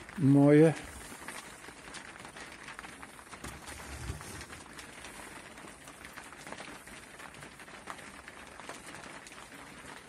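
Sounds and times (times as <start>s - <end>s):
rain pattering: 0.0s - 10.0s.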